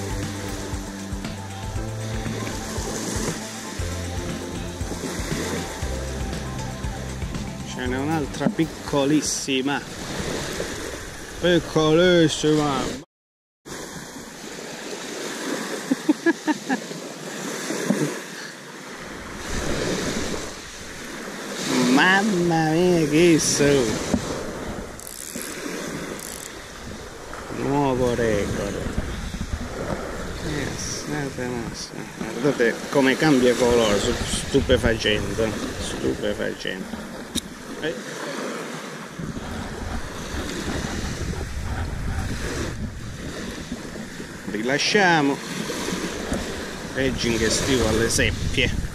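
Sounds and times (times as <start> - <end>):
waves washing onto shingle: 0.0 - 13.0, 13.7 - 48.9
wind buffeting microphone: 22.3 - 37.8, 39.0 - 44.7, 45.4 - 48.9.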